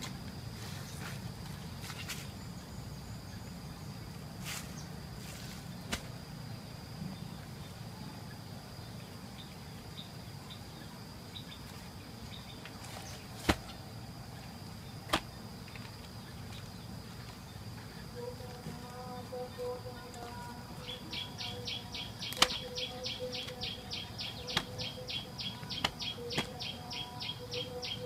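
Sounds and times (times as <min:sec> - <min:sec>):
wooden logs knocking: 0:25.6 - 0:26.6.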